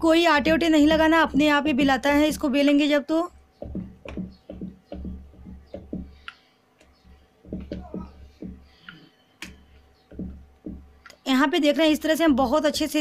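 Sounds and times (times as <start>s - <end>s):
rolling pin on wooden board: 0.3s - 2.5s, 3.6s - 6.2s, 6.8s - 8.7s, 9.4s - 11.1s
light knocks: 3.6s - 11.2s.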